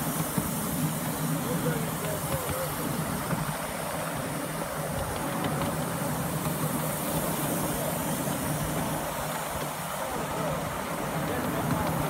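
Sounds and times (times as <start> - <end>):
steam locomotive working: 0.0 - 12.0
train wheels rumbling on track: 0.0 - 12.0.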